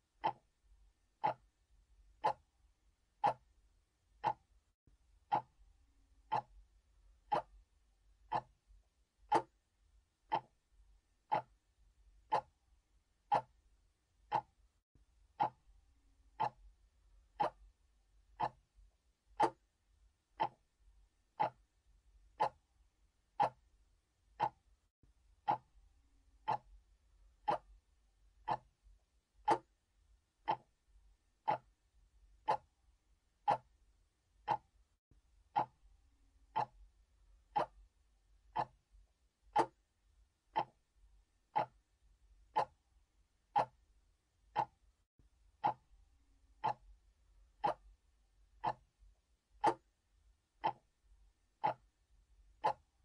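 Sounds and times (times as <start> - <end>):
mechanical clock ticking: 0.2 - 0.6, 1.2 - 1.5, 2.2 - 2.5, 3.2 - 3.6, 4.2 - 4.5, 5.3 - 5.6, 6.2 - 6.6, 7.3 - 7.6, 8.3 - 8.6, 9.2 - 9.6, 10.3 - 10.6, 11.3 - 11.6, 12.2 - 12.6, 13.2 - 13.6, 14.2 - 14.6, 15.4 - 15.7, 16.3 - 16.7, 17.4 - 17.7, 18.4 - 18.7, 19.4 - 19.7, 20.4 - 20.7, 21.4 - 21.7, 22.3 - 22.7, 23.4 - 23.7, 24.3 - 24.7, 25.4 - 25.8, 26.4 - 26.8, 27.4 - 27.8, 28.4 - 28.8, 29.4 - 29.8, 30.4 - 30.8, 31.4 - 31.8, 32.4 - 32.8, 33.4 - 33.8, 34.4 - 34.8, 35.5 - 35.8, 36.5 - 36.9, 37.5 - 37.9, 38.5 - 38.8, 39.5 - 39.8, 40.5 - 40.9, 41.5 - 41.9, 42.5 - 42.8, 43.5 - 43.8, 44.5 - 44.8, 45.6 - 45.9, 46.6 - 47.0, 47.6 - 48.0, 48.6 - 48.9, 49.6 - 49.9, 50.6 - 51.0, 51.6 - 52.0, 52.6 - 52.9.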